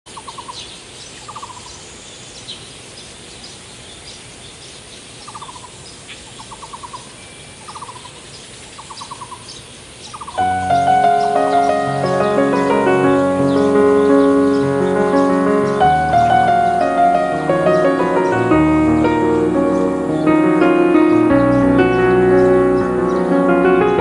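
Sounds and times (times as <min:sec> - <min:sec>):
steady hiss: 0:00.1 - 0:24.0
bird trills: 0:05.2 - 0:08.2, 0:08.8 - 0:18.4
high bird chirps: 0:06.4 - 0:24.0
piano music: 0:10.4 - 0:24.0.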